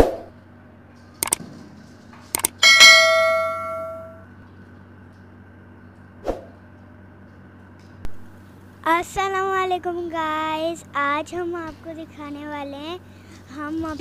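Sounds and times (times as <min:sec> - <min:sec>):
bright bell ding: 0:02.4 - 0:04.2.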